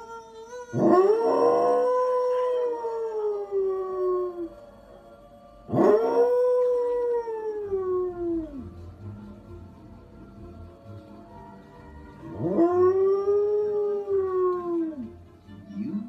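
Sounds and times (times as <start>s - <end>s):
dog howling: 0.0s - 4.6s, 5.6s - 8.7s, 12.3s - 15.2s.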